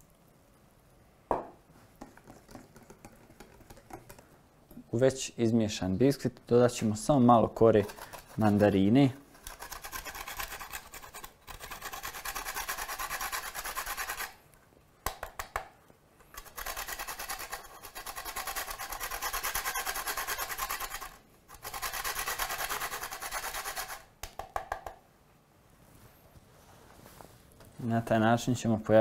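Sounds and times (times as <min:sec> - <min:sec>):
peel rasping on metal grater: 0:07.7 - 0:08.8, 0:09.4 - 0:14.4, 0:16.4 - 0:24.0.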